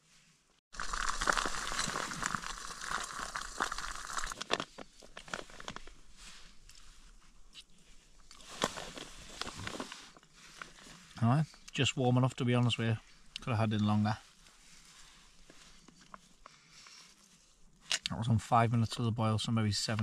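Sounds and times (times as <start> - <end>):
plastic food pouch crinkling: 0.8 - 6.0.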